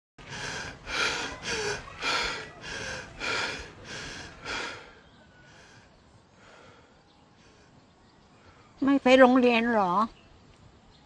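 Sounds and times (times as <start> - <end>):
person breathing hard: 0.2 - 7.8.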